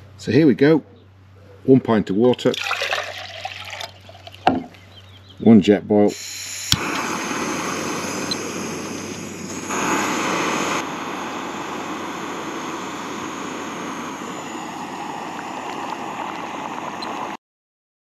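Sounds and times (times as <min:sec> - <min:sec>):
gas stove roaring hiss: 0:06.1 - 0:17.4.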